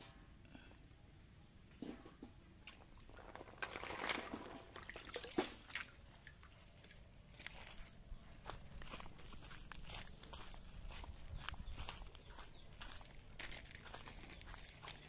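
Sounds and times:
water splashes and drips: 0:02.6 - 0:07.5.

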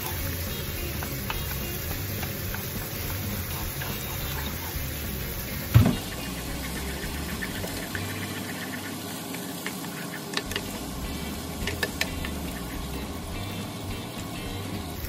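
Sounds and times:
spatula clicking against pan: 0:00.0 - 0:05.5, 0:11.6 - 0:12.8
food sizzling in a frying pan: 0:00.0 - 0:15.0.

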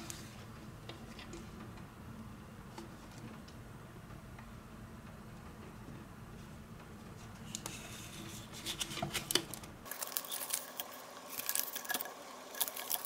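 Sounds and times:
tape backing crinkling: 0:08.5 - 0:13.0.

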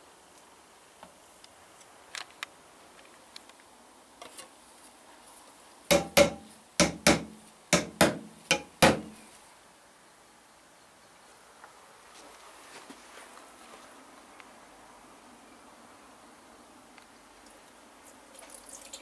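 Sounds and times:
metal paint tin knocking: 0:05.9 - 0:09.1.

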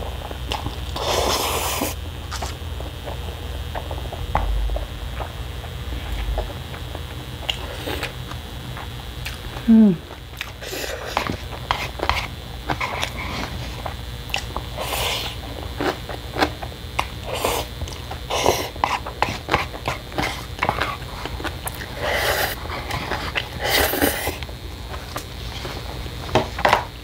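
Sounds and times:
noodle slurping: 0:21.8 - 0:24.4.

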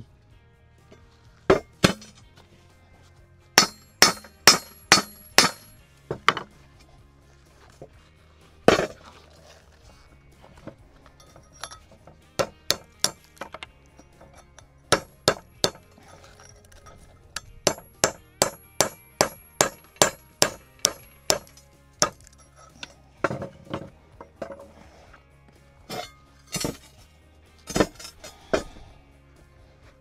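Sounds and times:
hammer striking chisel on metal: 0:01.5 - 0:02.2, 0:03.6 - 0:06.5, 0:12.4 - 0:16.0, 0:17.6 - 0:24.7, 0:27.7 - 0:28.7.

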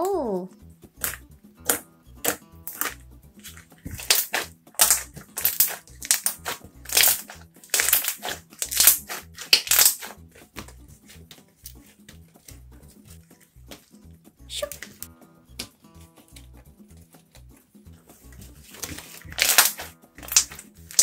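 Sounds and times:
slime squelching pops: 0:01.0 - 0:10.2, 0:18.8 - 0:21.0.

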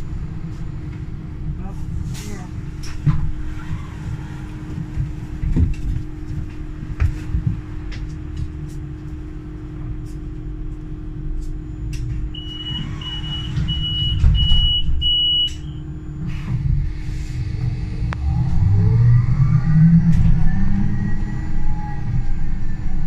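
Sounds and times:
bus humming and rumbling: 0:00.0 - 0:23.0
short high warning beeps: 0:12.4 - 0:15.8.

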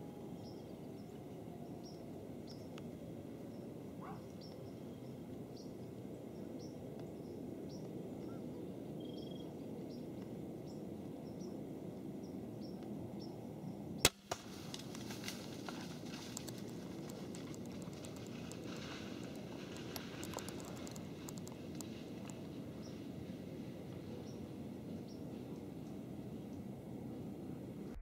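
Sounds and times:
sharp crossbow crack: 0:14.0 - 0:15.9
rustling through dry leaves: 0:14.1 - 0:23.8.

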